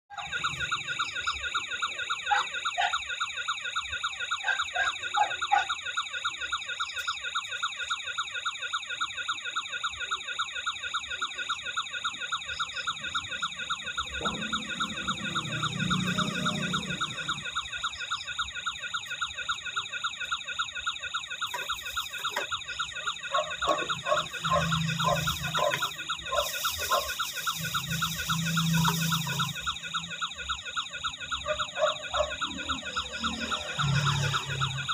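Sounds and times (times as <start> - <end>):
warbling electronic siren: 0.0 - 34.9.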